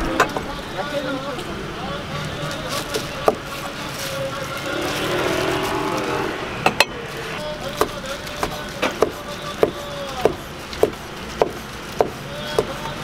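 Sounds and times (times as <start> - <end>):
steady engine hum: 0.0 - 9.2
cleaver chopping on wooden board: 8.4 - 12.8.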